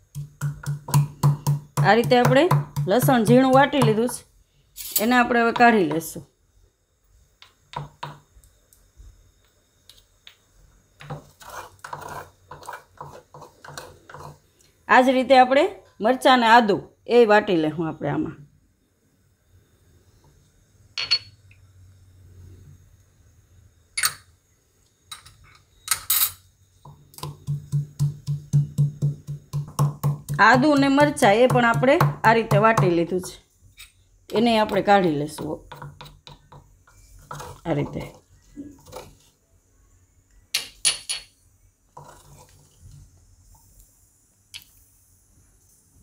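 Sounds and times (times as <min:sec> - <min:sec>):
wooden pestle pounding in mortar: 0:00.1 - 0:04.1, 0:27.2 - 0:33.1
spoon scraping bowl: 0:11.0 - 0:14.6, 0:33.7 - 0:39.4, 0:41.9 - 0:43.0.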